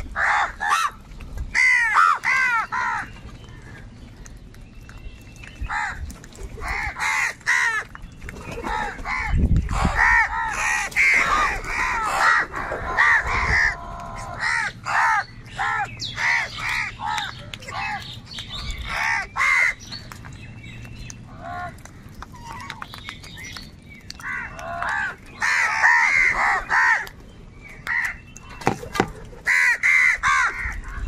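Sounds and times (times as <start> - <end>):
crows cawing: 0.2 - 1.0, 1.6 - 3.1, 6.6 - 7.9, 8.7 - 18.0, 18.8 - 19.8, 24.2 - 27.1, 29.4 - 30.8.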